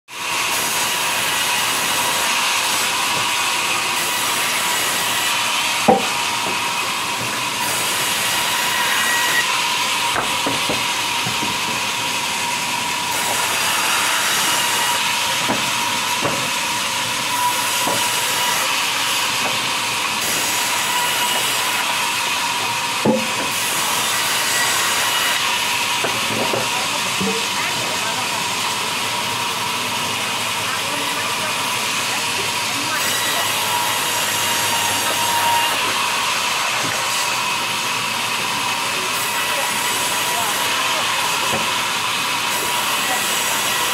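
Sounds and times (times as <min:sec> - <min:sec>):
band saw cutting logs: 0:00.1 - 0:43.9
wood knocks: 0:05.9 - 0:06.6, 0:23.0 - 0:23.5.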